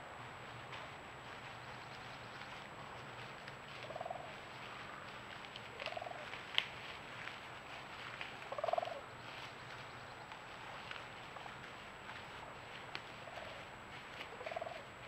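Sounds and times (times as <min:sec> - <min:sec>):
turkey gobbling: 0:03.8 - 0:04.4, 0:05.8 - 0:06.4, 0:08.5 - 0:09.0, 0:13.2 - 0:13.6, 0:14.2 - 0:14.9.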